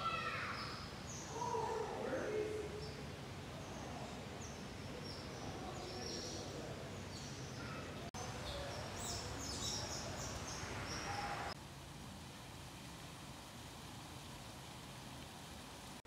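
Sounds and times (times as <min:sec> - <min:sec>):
small birds chirping: 0:00.0 - 0:11.6
steady background hiss: 0:00.0 - 0:16.0.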